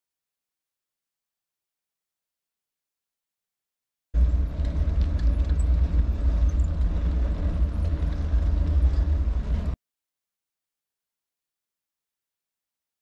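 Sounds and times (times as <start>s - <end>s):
wind buffeting microphone: 4.2s - 9.8s.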